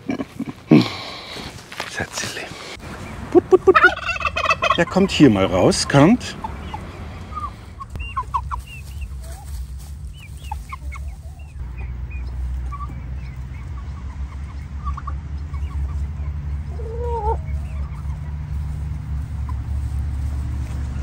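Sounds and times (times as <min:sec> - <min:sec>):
poultry clucking and chirping: 0:00.0 - 0:21.0
low rumble: 0:06.3 - 0:21.0.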